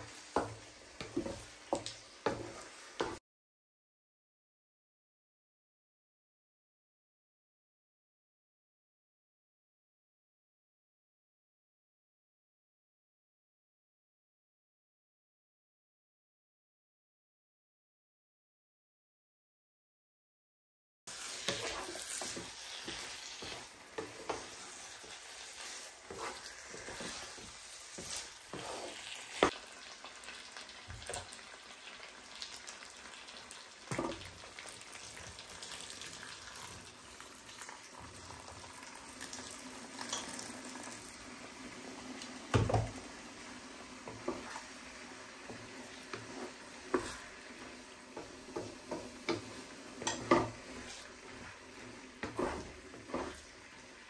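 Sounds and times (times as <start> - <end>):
food sizzling in a wok: 0.0 - 3.2, 21.1 - 54.0
wooden spatula scraping a pan: 0.0 - 3.2, 21.1 - 29.6, 42.8 - 54.0
water pouring: 33.9 - 41.3.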